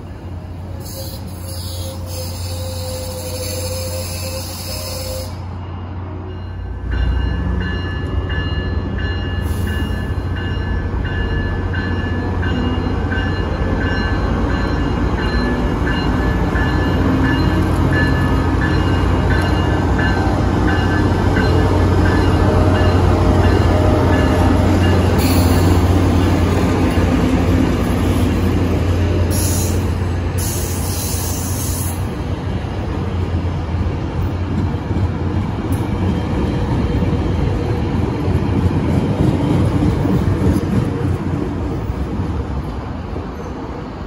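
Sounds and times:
diesel locomotive engine drone: 0.0 - 44.0
rail cars hissing past: 0.0 - 44.0
locomotive bell ringing: 5.8 - 26.3.

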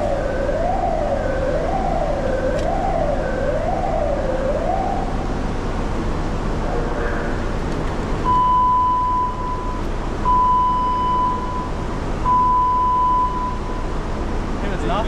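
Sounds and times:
low background noise: 0.0 - 15.0
electronic beeper long beeps: 8.2 - 14.0.

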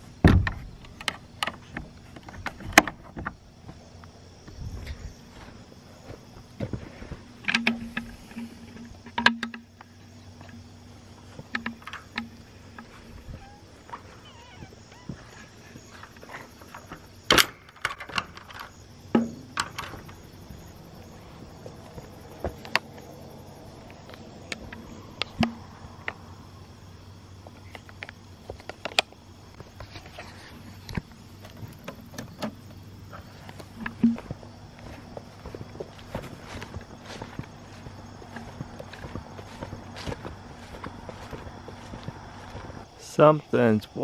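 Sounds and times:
wire fence clicks and clinks: 7.4 - 10.6, 16.7 - 20.2.

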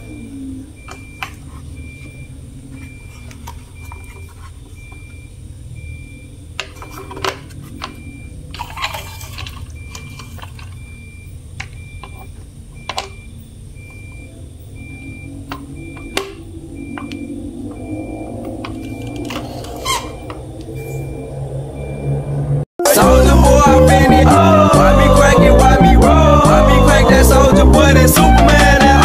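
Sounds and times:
faint high beep: 0.0 - 6.4, 7.8 - 9.1, 10.8 - 22.4
plastic rubbing: 0.9 - 5.2, 6.6 - 10.8
plastic scrape: 2.7 - 4.8, 6.6 - 10.8.

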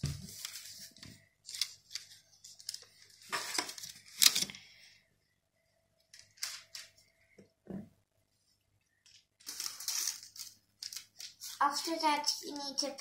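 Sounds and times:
parchment rustling: 0.0 - 4.8, 8.4 - 13.0.

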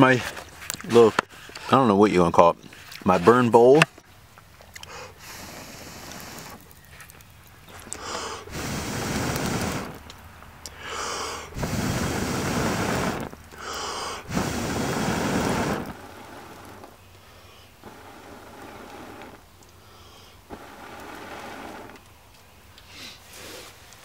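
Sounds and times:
sharp inhale: 4.8 - 6.6, 7.9 - 10.0, 10.7 - 15.8, 17.2 - 18.2, 19.0 - 20.4
person blowing on coals: 4.8 - 6.7, 7.7 - 10.1, 10.7 - 22.0.

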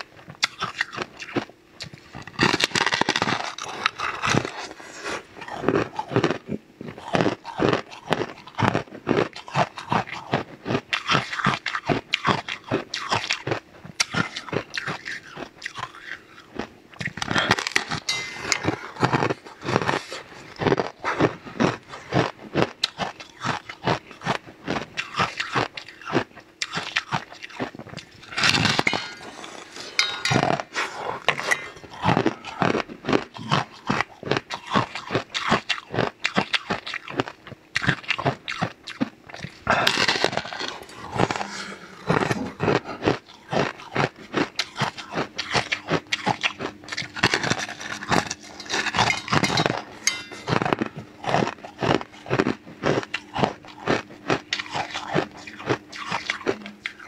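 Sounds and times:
crunching and chewing crisp: 0.0 - 57.0.

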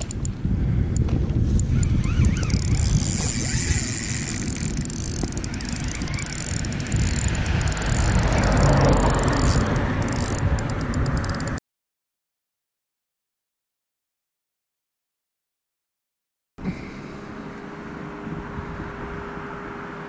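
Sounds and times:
spinning reel clicking: 0.0 - 0.4, 1.5 - 11.6
wind rumble on microphone: 0.0 - 11.6, 17.9 - 20.0.

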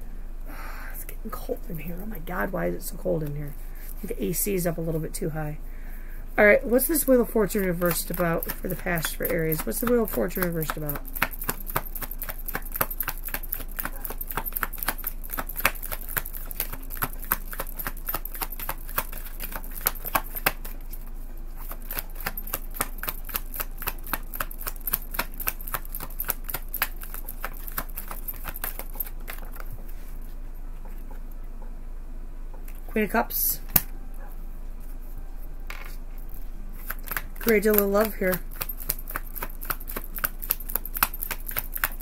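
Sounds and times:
cards being shuffled: 6.7 - 21.0, 21.6 - 30.2, 35.7 - 42.0.

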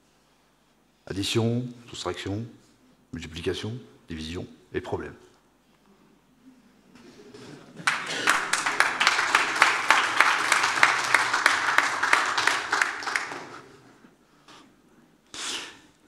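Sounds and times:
audience applauding: 7.4 - 13.9.

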